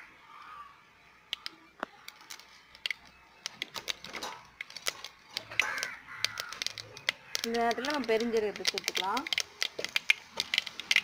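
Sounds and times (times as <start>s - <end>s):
crow cawing: 0.0s - 0.8s, 5.5s - 7.6s
mustard seeds popping in oil: 1.3s - 11.0s.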